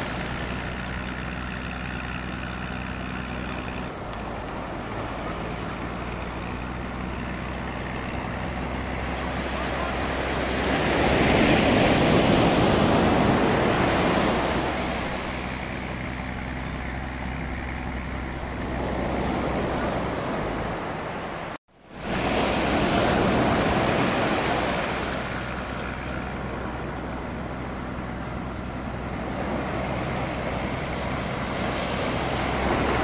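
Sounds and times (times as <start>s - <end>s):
surf breaking on beach: 4.2s - 15.8s, 18.7s - 33.0s.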